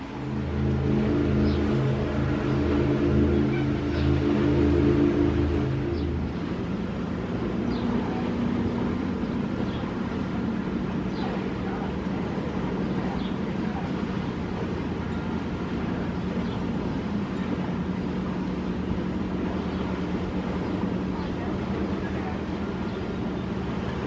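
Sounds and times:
motorboat engines droning: 0.0 - 24.0.

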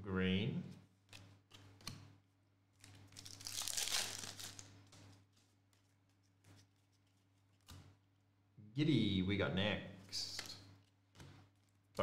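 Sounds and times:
foil wrapper tearing and crinkling: 3.1 - 4.7.

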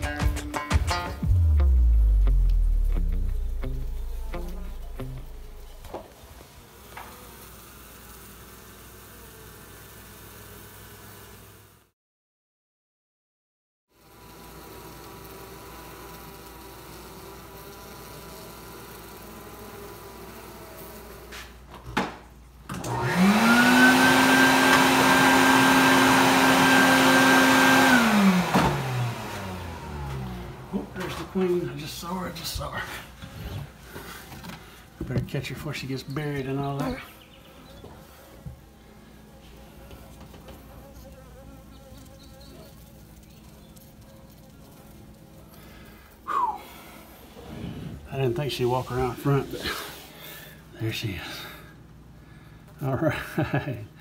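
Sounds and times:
short downward sliding sound: 1.2 - 5.9
vacuum motor spinning: 1.2 - 7.7, 14.0 - 21.6, 22.7 - 32.2
bees humming: 1.2 - 11.7, 14.0 - 21.3, 34.8 - 47.3.

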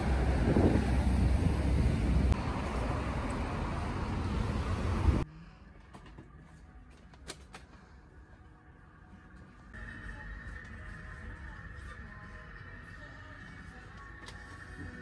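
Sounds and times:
wind buffeting microphone: 0.0 - 2.4
street traffic: 0.0 - 6.2.

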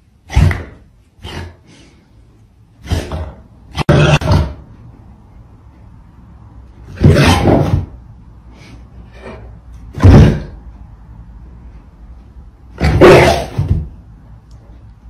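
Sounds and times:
large dog barking: 12.8 - 13.7.

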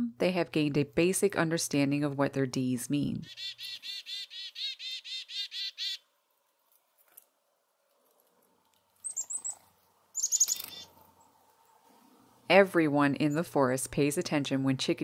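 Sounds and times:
squirrel chattering: 3.2 - 6.0
high squeaky calls: 3.3 - 6.0, 9.0 - 11.0.

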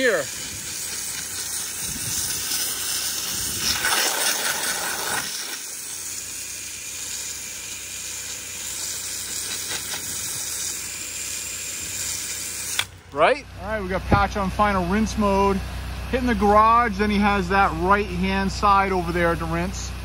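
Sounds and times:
pressure washer spray hissing: 0.0 - 13.0.

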